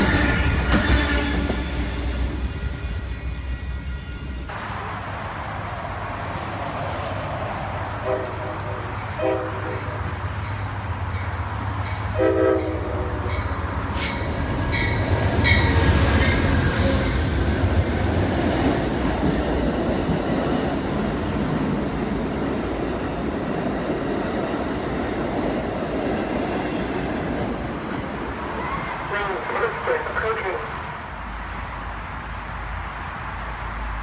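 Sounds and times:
train horn blast: 0.0 - 2.2, 8.0 - 10.2, 12.1 - 13.4.

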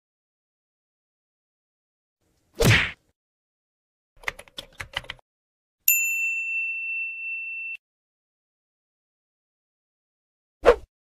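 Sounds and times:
keyboard typing clicks: 4.2 - 5.2
bright bell ding: 5.9 - 7.8.

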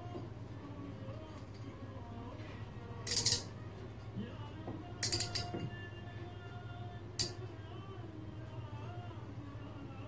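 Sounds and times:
clock parts clicking: 3.1 - 3.5, 5.0 - 5.5.

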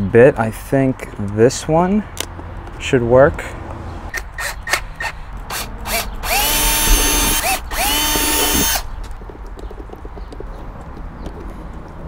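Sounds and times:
cordless drill whining: 5.5 - 8.9.

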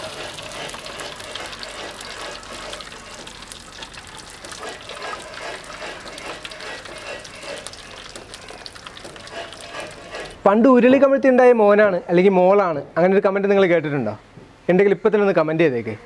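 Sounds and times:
melted wax pouring into water: 0.0 - 10.4.

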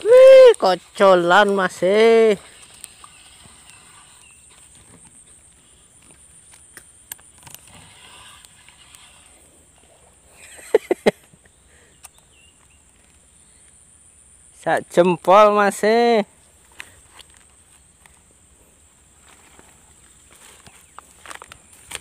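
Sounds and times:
steady high-pitched hiss: 0.0 - 22.0
rustling in grass: 16.4 - 22.0.

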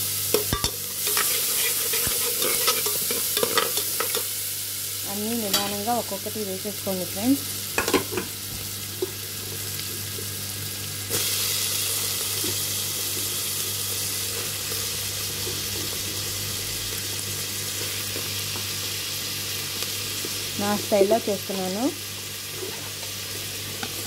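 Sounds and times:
onions sizzling in butter: 0.0 - 24.0.

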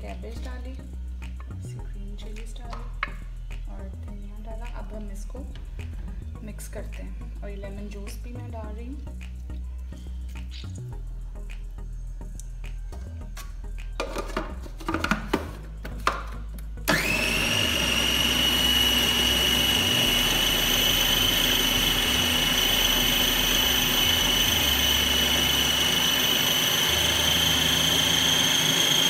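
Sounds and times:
food processor motor whining: 16.9 - 29.0.

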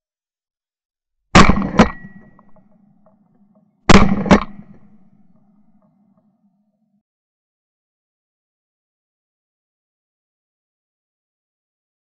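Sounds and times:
gunshots: 1.4 - 2.7, 3.9 - 5.6.

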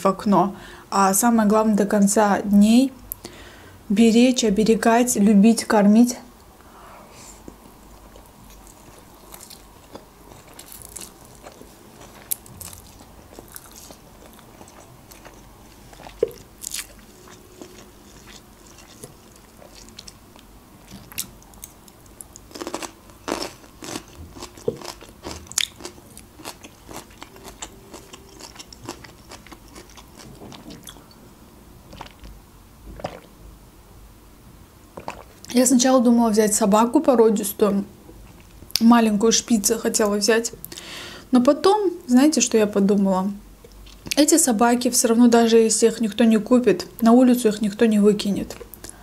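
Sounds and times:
chewing and crunching: 8.0 - 31.1, 31.9 - 32.3, 35.0 - 35.5.

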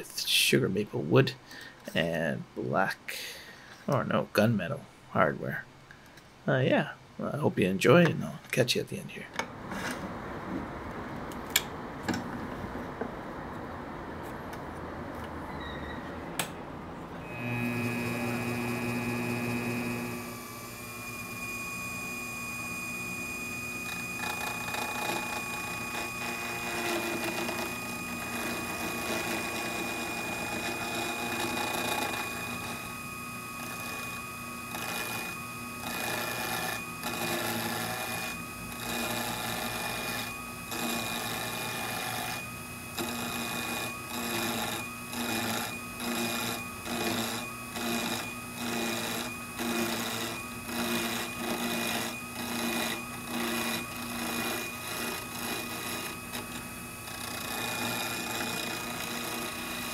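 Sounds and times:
turning tool cutting wood: 17.2 - 59.9
wood lathe whining: 17.2 - 59.9.

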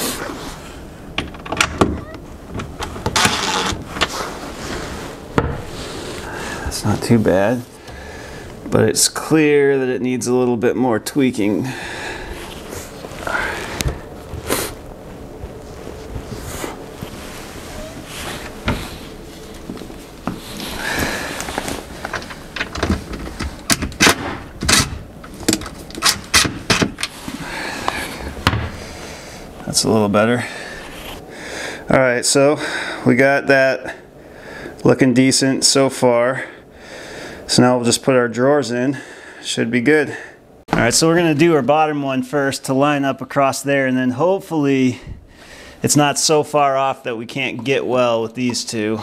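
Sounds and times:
cabinet door clicks and knocks: 1.2 - 3.2, 5.4 - 5.7, 28.4 - 28.8
hinge and door clicks: 1.2 - 4.1, 22.1 - 27.1
rustling: 2.0 - 8.8, 11.8 - 29.8.

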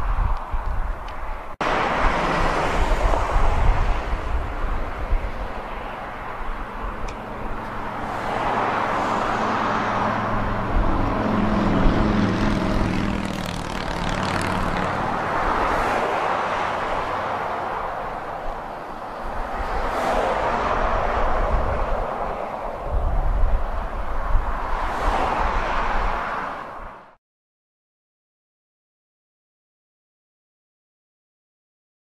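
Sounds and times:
wind rumble on microphone: 0.0 - 27.2
engine droning: 1.6 - 19.1.

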